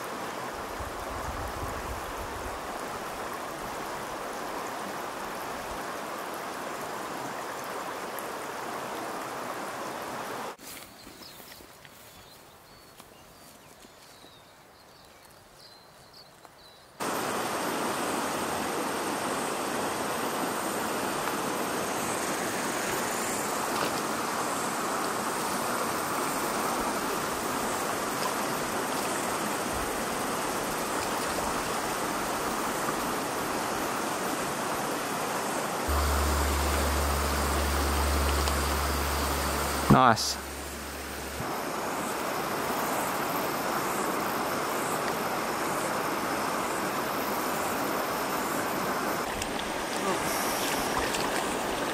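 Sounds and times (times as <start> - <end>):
river water rushing over stones: 0.0 - 10.6, 17.0 - 51.9
low hum: 35.9 - 41.4.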